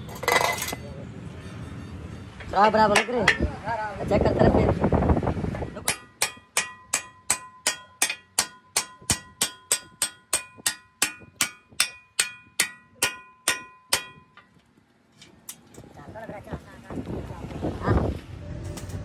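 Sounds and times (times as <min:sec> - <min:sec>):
hammer tapping steel pin: 0:05.9 - 0:14.5.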